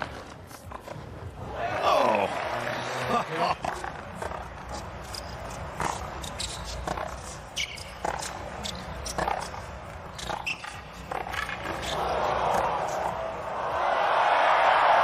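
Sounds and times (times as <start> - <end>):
low arena hum: 0.0 - 15.0
racquets striking tennis ball: 3.6 - 13.2
tennis ball bouncing: 3.6 - 13.2.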